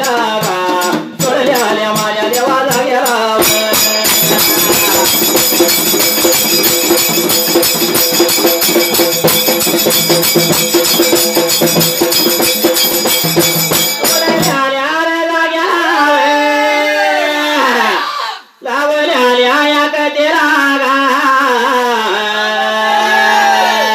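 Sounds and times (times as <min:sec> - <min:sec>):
person singing: 0:00.0 - 0:06.4, 0:13.9 - 0:23.9
fast rattling percussion: 0:00.0 - 0:14.8
steady held tone: 0:03.4 - 0:14.6.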